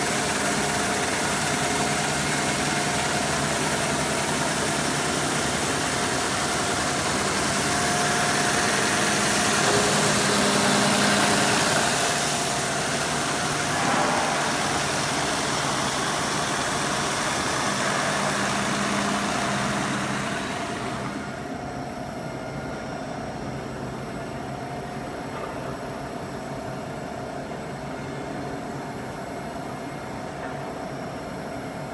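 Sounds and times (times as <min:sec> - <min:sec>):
sanding machine hum: 0:00.0 - 0:21.4.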